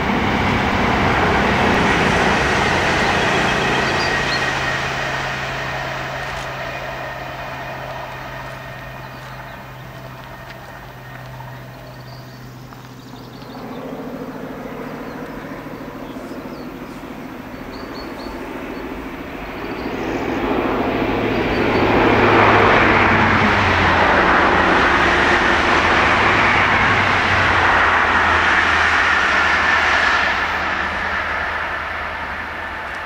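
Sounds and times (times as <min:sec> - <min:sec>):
train passing at speed: 0:00.0 - 0:33.0.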